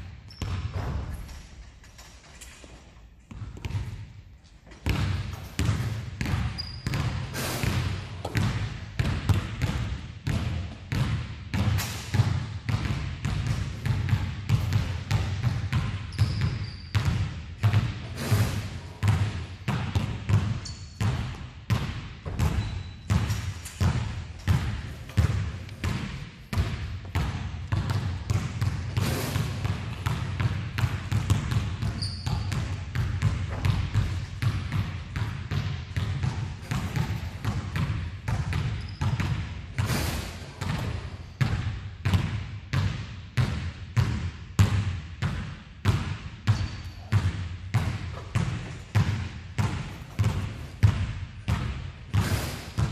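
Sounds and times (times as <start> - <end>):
basketballs bouncing on hardwood floor: 0.0 - 1.5, 3.2 - 52.9.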